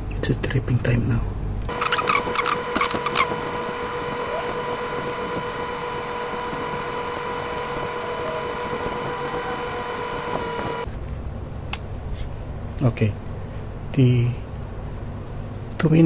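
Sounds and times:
low hum: 1.3s - 11.8s
high-pitched hum tones: 1.4s - 11.0s.

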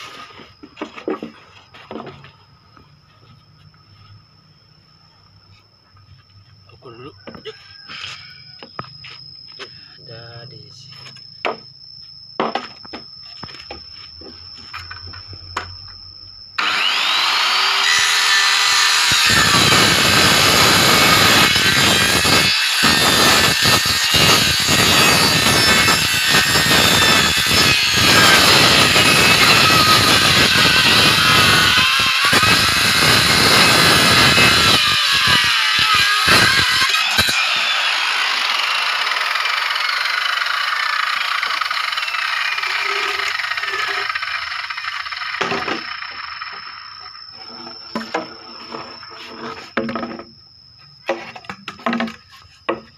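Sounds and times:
circular saw cutting bamboo: 16.6s - 50.2s.

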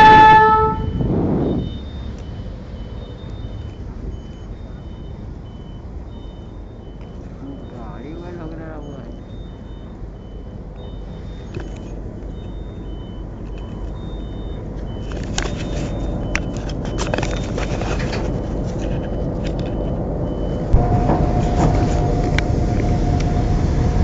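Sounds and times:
faint high beep: 0.0s - 16.4s
train locomotive rumbling: 0.0s - 24.0s
rattles and clicks: 14.7s - 23.9s.

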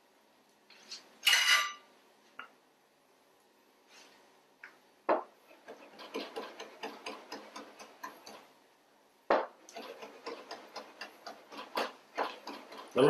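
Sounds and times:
knife chopping on cutting board: 9.3s - 13.0s.

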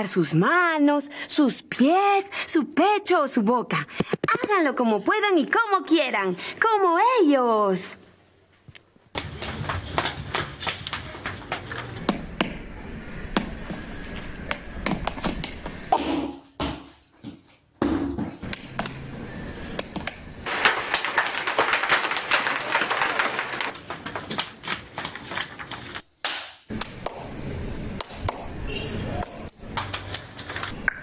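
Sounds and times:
feet stamping on hard floor: 9.2s - 12.6s
hands clapping: 19.8s - 23.8s, 26.3s - 27.3s, 28.0s - 28.5s, 29.2s - 30.3s.

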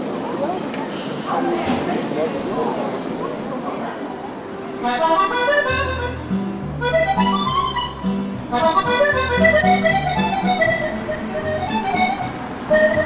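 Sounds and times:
instrumental background music: 5.0s - 13.0s.

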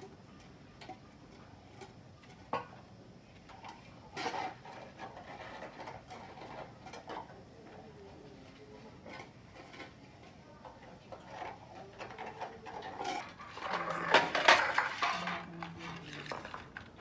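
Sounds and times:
steel dishes clattering and clinking: 3.5s - 7.5s, 10.7s - 16.8s.

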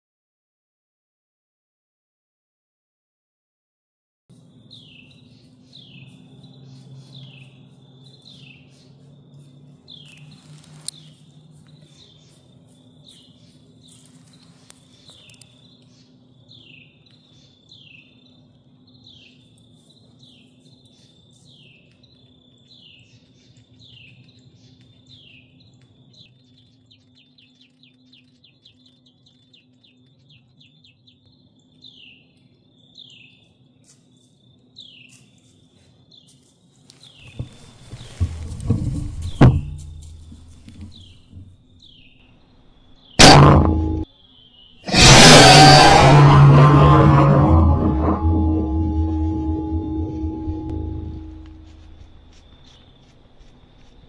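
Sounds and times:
low steady hum: 46.1s - 53.4s.

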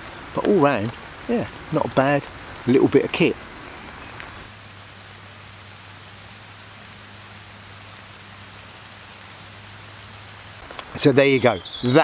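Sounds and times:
steady rain: 0.0s - 12.0s.

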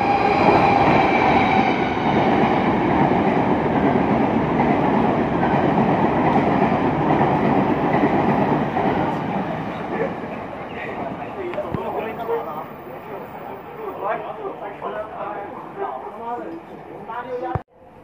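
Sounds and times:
train wheels rumbling on rails: 0.0s - 13.2s.

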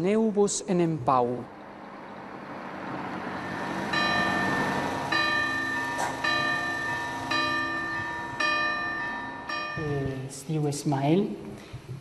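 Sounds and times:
passing vehicle: 0.5s - 10.3s
church bell tolling: 3.1s - 10.6s.

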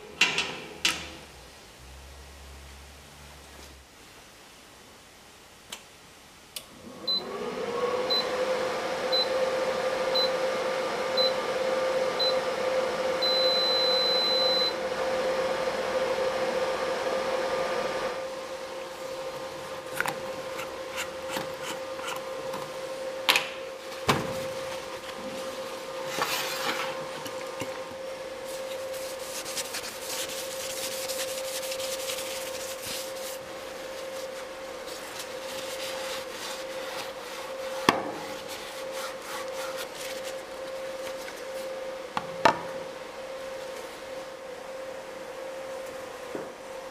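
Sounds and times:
welder cooling fan hum: 5.6s - 46.9s
short beeps: 13.2s - 14.7s
long beep: 13.2s - 14.8s.

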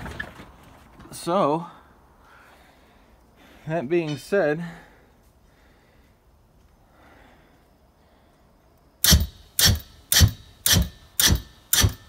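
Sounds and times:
propane flame bursts: 9.0s - 12.0s.

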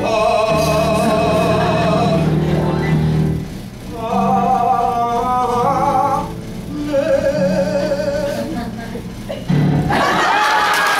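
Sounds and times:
young man singing: 0.0s - 2.6s, 3.9s - 9.0s.

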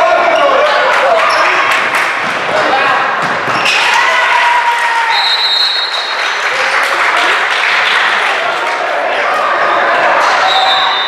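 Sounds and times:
crowd clapping and cheering: 0.0s - 11.0s
people shouting: 2.5s - 5.2s
high whistle blowing: 5.1s - 6.1s, 10.4s - 11.0s.

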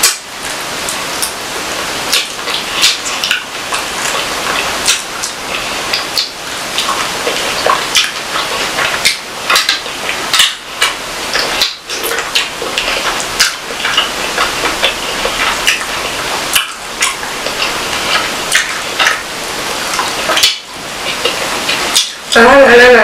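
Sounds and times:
chewing: 2.1s - 22.3s.

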